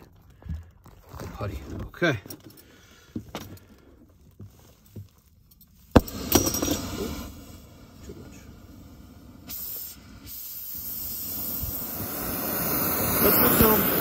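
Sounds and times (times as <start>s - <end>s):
torch flame hissing: 5.9s - 14.0s.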